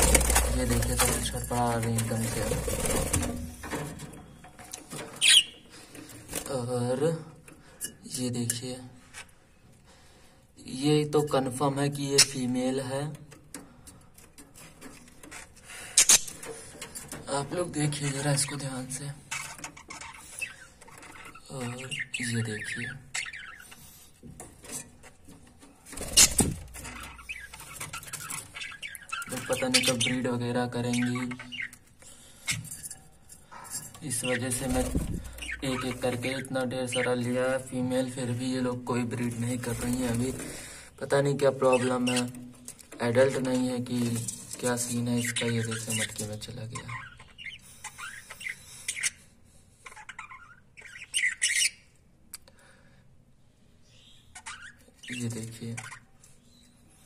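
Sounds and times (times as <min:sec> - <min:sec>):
budgerigars chirping: 0:05.2 - 0:05.8, 0:15.8 - 0:16.4, 0:18.0 - 0:24.1, 0:26.0 - 0:31.8, 0:33.5 - 0:38.7, 0:39.4 - 0:42.4, 0:43.2 - 0:52.0, 0:53.8 - 0:56.7.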